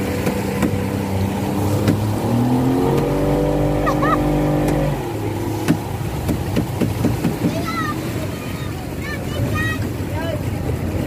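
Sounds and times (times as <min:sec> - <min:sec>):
motor boat engine: 0:00.0 - 0:11.0.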